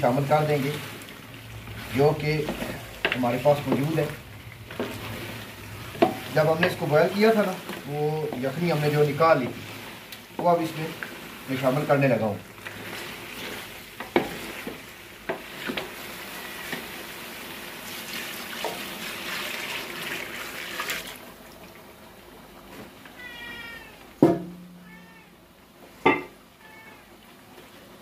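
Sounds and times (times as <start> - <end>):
chicken sizzling in pot: 0.0 - 21.8
cat meowing: 16.2 - 17.0, 23.1 - 25.4, 26.6 - 27.2.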